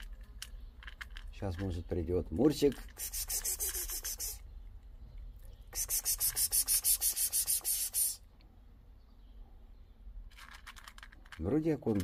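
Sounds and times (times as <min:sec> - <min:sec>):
cat crunching dry kibble: 0:00.0 - 0:04.2, 0:10.3 - 0:12.0.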